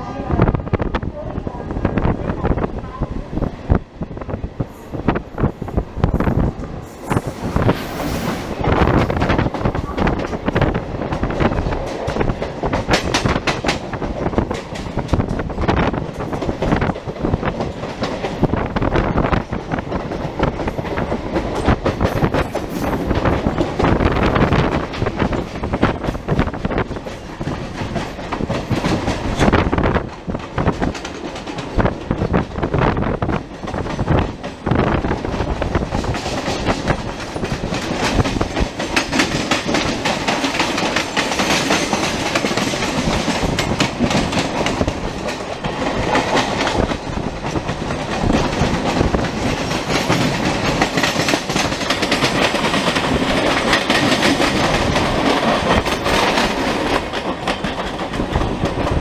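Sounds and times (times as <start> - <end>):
train running noise: 0.0 - 59.0
wheels clattering over rail joints: 33.5 - 59.0.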